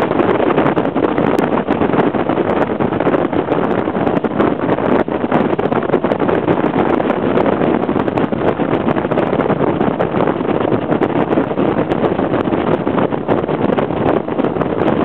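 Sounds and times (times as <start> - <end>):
outboard engine: 0.0 - 15.0
wind buffeting microphone: 0.0 - 15.0.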